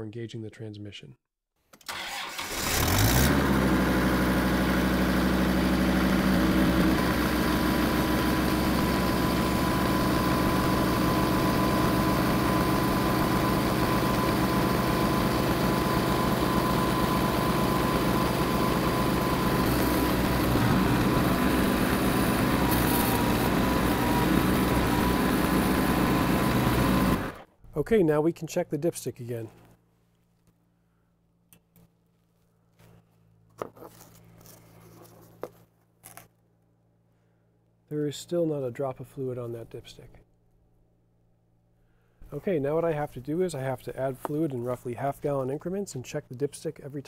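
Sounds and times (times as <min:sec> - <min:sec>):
tractor diesel engine idling: 0:03.4 - 0:27.4.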